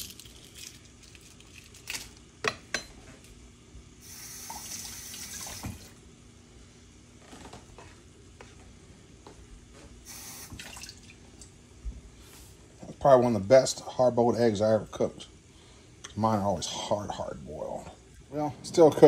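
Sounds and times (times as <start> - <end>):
water splashing into sink: 4.2 - 5.9, 10.1 - 11.5.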